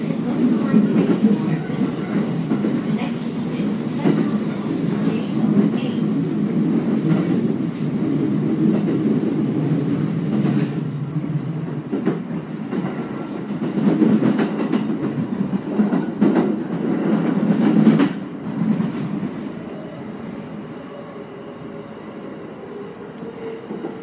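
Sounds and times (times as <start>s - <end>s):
train wheels rumbling: 0.0s - 20.4s
sharp clacks of train wheels: 11.7s - 19.2s.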